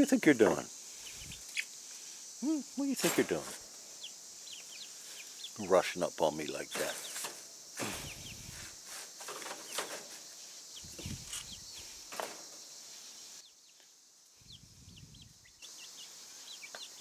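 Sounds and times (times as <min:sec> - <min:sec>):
chicks peeping: 0:00.4 - 0:01.8, 0:02.5 - 0:05.7, 0:06.7 - 0:12.6, 0:14.4 - 0:17.0
rustling of wood shavings: 0:06.7 - 0:13.4.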